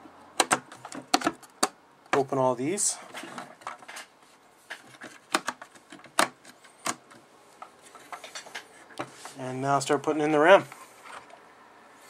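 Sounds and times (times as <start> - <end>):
plastic latches clicking open: 0.4 - 2.2, 5.0 - 7.2.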